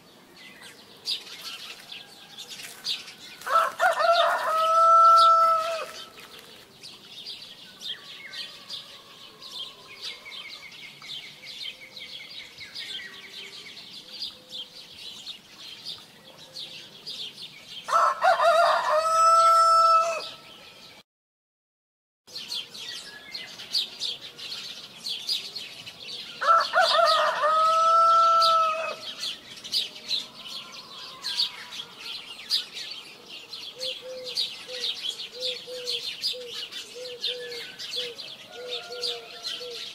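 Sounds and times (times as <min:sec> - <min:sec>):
small birds chirping: 0:00.0 - 0:18.1, 0:22.3 - 0:39.9
rooster crowing: 0:03.4 - 0:06.0, 0:08.0 - 0:10.3, 0:17.9 - 0:20.4, 0:26.4 - 0:29.0, 0:38.5 - 0:39.8.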